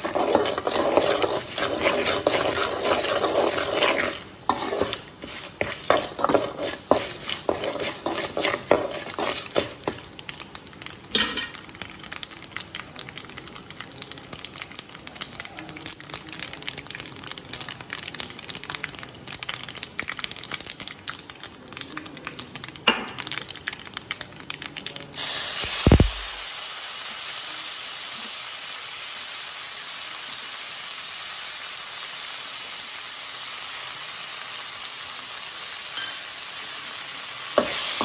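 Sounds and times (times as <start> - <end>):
spices popping in hot oil: 0.0 - 38.0.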